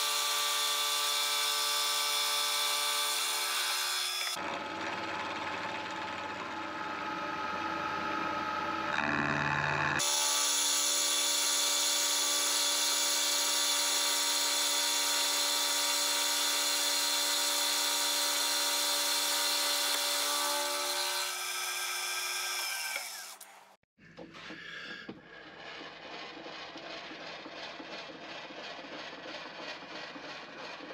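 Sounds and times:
milling machine whining: 0:04.0 - 0:10.1
rough mechanical sound: 0:04.3 - 0:10.0, 0:25.2 - 0:30.9.

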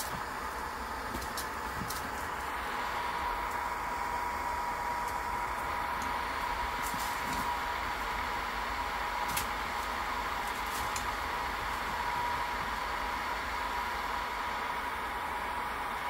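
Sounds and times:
small fan motor whirring: 0:00.0 - 0:16.0.

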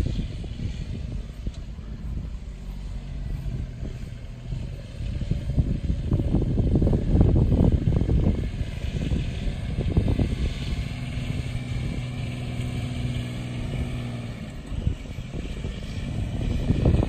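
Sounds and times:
utility vehicle driving: 0:00.0 - 0:17.0
wind buffeting microphone: 0:00.0 - 0:17.0.

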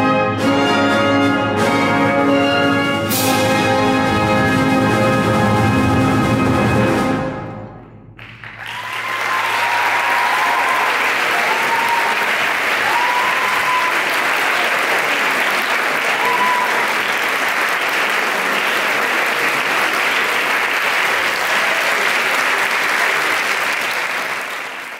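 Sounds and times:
audience applauding: 0:08.2 - 0:24.9
crowd shouts: 0:08.7 - 0:15.3, 0:16.0 - 0:17.0.

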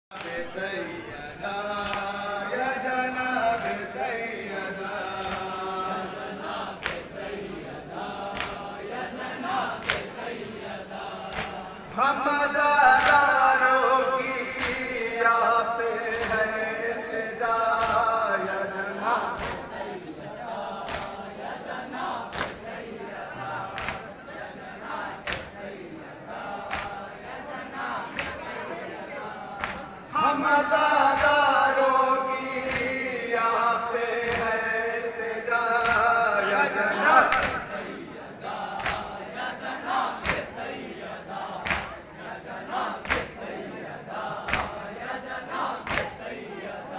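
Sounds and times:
men chanting a lament: 0:00.1 - 0:46.9
sharp slaps: 0:01.7 - 0:02.2, 0:05.2 - 0:05.6, 0:06.8 - 0:07.2, 0:08.2 - 0:08.8, 0:09.8 - 0:10.2, 0:11.2 - 0:11.7, 0:12.9 - 0:13.3, 0:14.4 - 0:15.0, 0:16.0 - 0:16.7, 0:17.7 - 0:18.2, 0:19.3 - 0:19.9, 0:20.8 - 0:21.2, 0:22.3 - 0:22.6, 0:23.7 - 0:24.1, 0:25.2 - 0:25.6, 0:26.6 - 0:27.1, 0:29.6 - 0:30.0, 0:32.4 - 0:33.1, 0:34.2 - 0:34.8, 0:35.8 - 0:36.2, 0:37.2 - 0:37.8, 0:38.7 - 0:39.2, 0:40.2 - 0:40.6, 0:41.6 - 0:42.0, 0:43.0 - 0:43.4, 0:44.4 - 0:44.9, 0:45.8 - 0:46.2.

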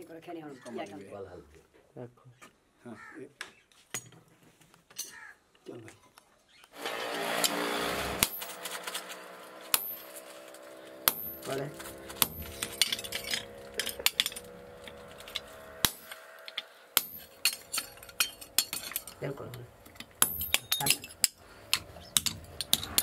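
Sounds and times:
hammer blows on anvil: 0:11.0 - 0:19.1.

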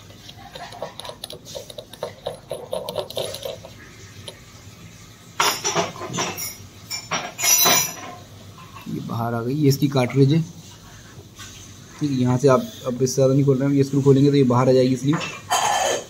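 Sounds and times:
metal parts clicking and scraping: 0:00.0 - 0:04.5.

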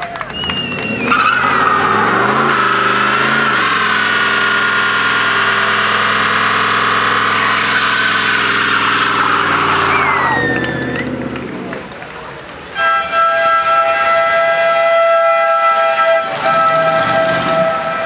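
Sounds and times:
car engine revving: 0:00.2 - 0:12.5, 0:15.5 - 0:18.0
tyres squealing: 0:00.4 - 0:11.2.

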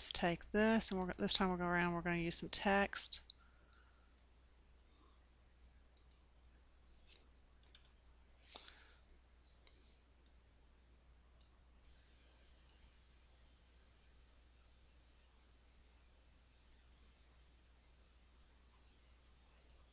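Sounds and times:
faint low hum: 0:00.0 - 0:19.9
computer mouse clicks: 0:00.9 - 0:01.4, 0:06.0 - 0:08.0, 0:11.4 - 0:11.6, 0:12.6 - 0:13.0, 0:16.5 - 0:17.0, 0:19.5 - 0:19.9.

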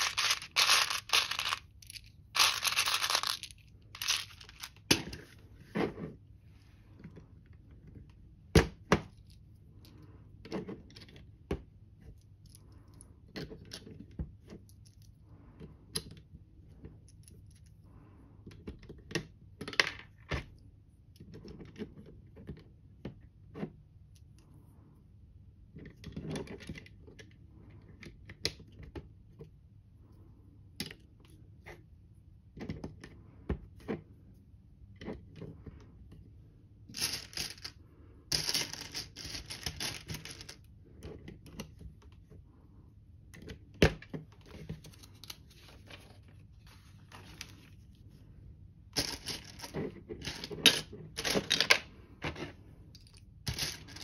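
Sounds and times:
plastic toy bricks clattering: 0:00.0 - 0:05.1, 0:36.9 - 0:40.7, 0:49.0 - 0:52.4, 0:53.0 - 0:54.0.

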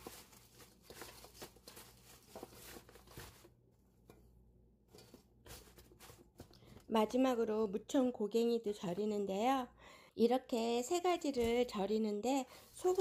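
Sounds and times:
onions rustling in metal bowl: 0:00.0 - 0:07.2, 0:11.2 - 0:13.0.

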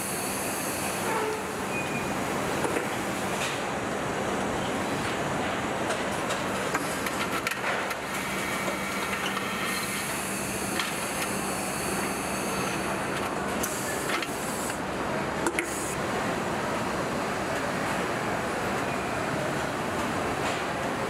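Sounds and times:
hiss: 0:00.0 - 0:01.1
machinery hum: 0:00.0 - 0:21.0.

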